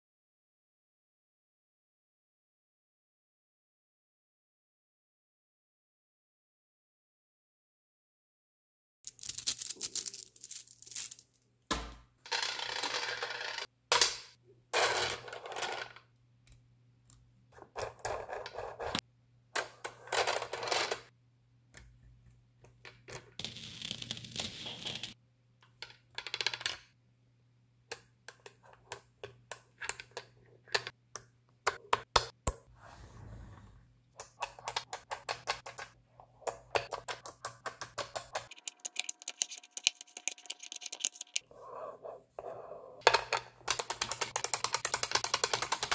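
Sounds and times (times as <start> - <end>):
magnetic balls clicking and rattling: 34.2 - 41.4, 43.0 - 45.9.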